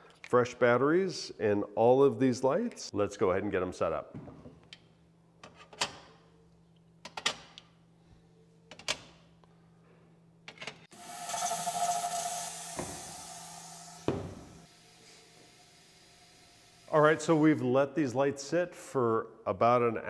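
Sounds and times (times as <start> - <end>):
steady whistle-like tone: 11.0 - 17.5
nozzle hissing spraying mist: 11.0 - 17.6.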